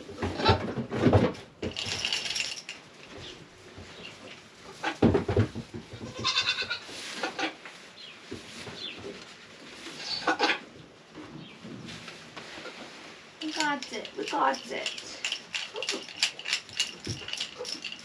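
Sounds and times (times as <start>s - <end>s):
goat bleating: 6.0s - 6.8s.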